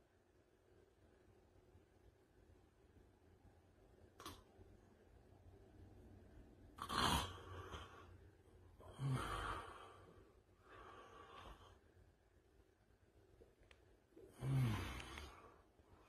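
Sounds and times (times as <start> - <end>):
man breathing heavily in sleep: 7.2 - 12.0, 14.2 - 16.0.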